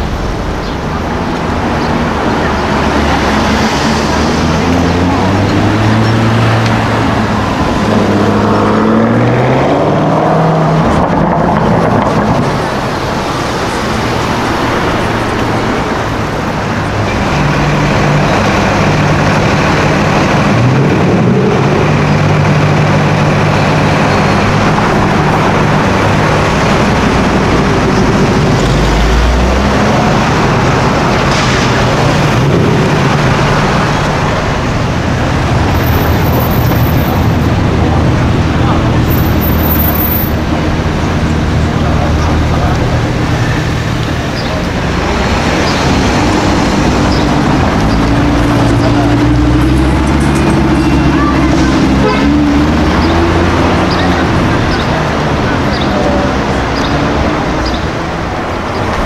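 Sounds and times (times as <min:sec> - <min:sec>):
car engine revving: 0:00.0 - 0:59.0
traffic passing: 0:00.0 - 0:59.0.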